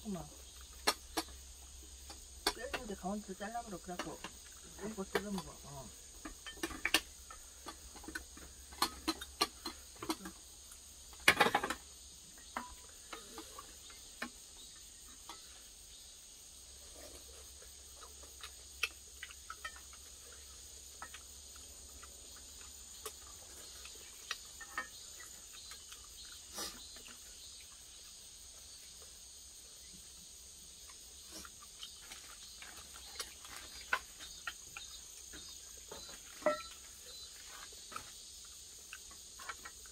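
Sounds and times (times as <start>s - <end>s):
insects chirring: 0.0s - 39.9s
utensils clinking on metal bowls: 2.5s - 10.4s, 35.9s - 37.6s.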